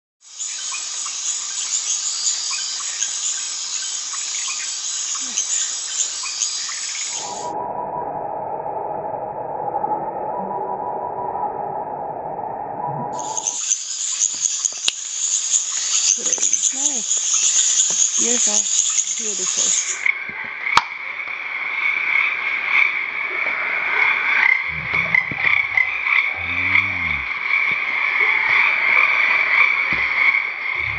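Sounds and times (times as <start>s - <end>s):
insect chirps and clicks: 0.2s - 7.5s, 13.2s - 30.9s
crickets trilling: 0.2s - 7.9s, 13.2s - 30.9s
frogs croaking: 0.2s - 12.1s, 12.8s - 30.9s.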